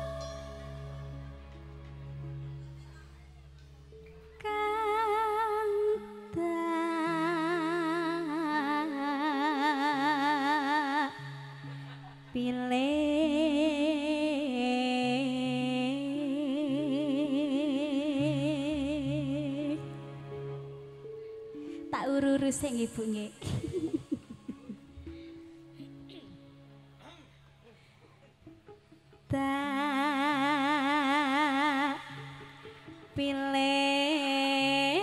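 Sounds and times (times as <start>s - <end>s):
low held accompaniment notes: 0.0s - 35.0s
woman singing with vibrato: 4.4s - 11.5s, 12.3s - 19.9s, 21.9s - 24.0s, 29.3s - 35.0s.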